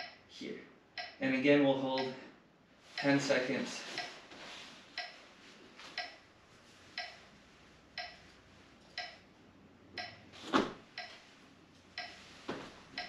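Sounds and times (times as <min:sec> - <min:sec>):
timer ticking: 0:00.0 - 0:00.3, 0:00.9 - 0:02.3, 0:02.9 - 0:04.3, 0:04.9 - 0:05.2, 0:05.8 - 0:06.3, 0:06.9 - 0:08.4, 0:09.0 - 0:10.3, 0:10.9 - 0:13.0.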